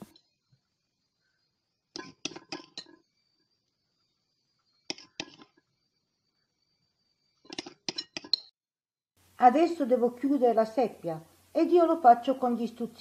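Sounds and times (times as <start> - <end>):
spoon clinking against bowl: 7.5 - 8.5.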